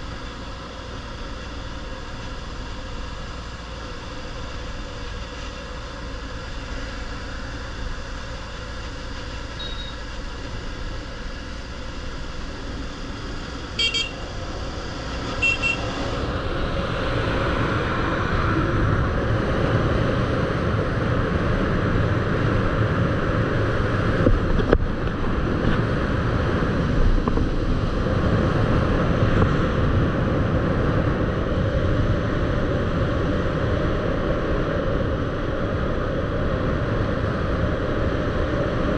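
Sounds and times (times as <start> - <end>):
vehicle engine running: 0.0 - 38.9
short horn beeps: 9.6 - 10.0, 13.8 - 14.2, 15.4 - 15.9
rushing wind noise: 10.4 - 38.9.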